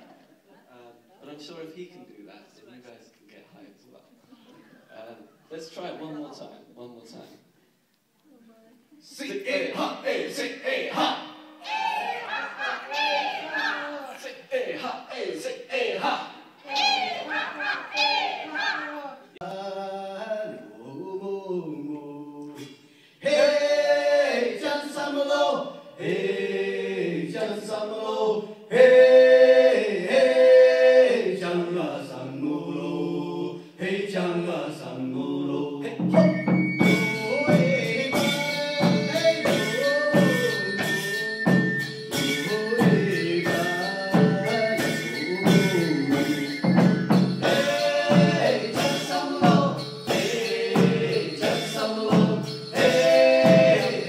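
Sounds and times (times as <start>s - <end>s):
men singing folk song: 19.4s - 41.5s, 42.1s - 54.0s
drums and percussion beat: 35.9s - 54.0s.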